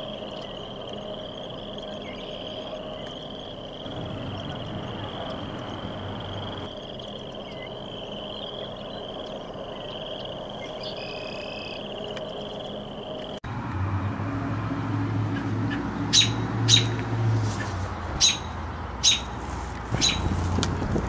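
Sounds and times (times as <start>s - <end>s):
frogs trilling: 0.0s - 13.4s, 15.3s - 20.8s
low rumble: 0.0s - 16.0s.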